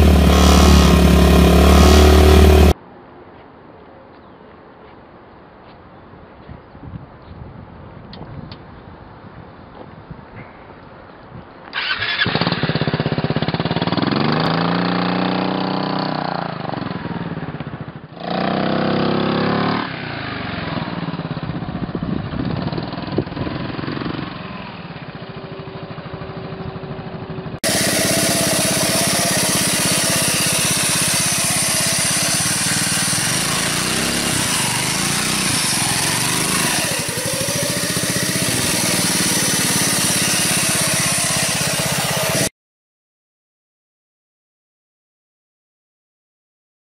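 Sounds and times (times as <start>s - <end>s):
motorcycle engine revving: 0.0s - 2.8s, 11.8s - 42.5s
small motorbike engine running: 0.0s - 2.8s, 11.8s - 42.5s.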